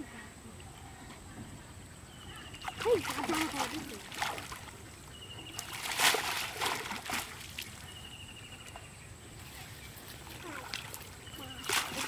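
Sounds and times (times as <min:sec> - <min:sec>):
water splashing: 0:02.5 - 0:12.0.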